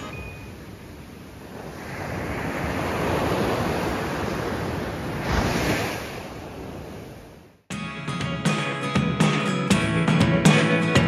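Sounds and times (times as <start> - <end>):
surf breaking on a beach: 0.0 - 7.4.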